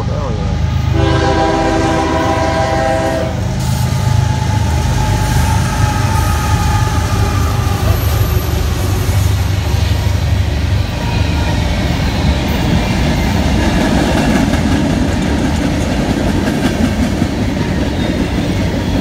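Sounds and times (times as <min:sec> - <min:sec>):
locomotive rumble: 0:00.0 - 0:19.0
train horn: 0:00.9 - 0:09.5.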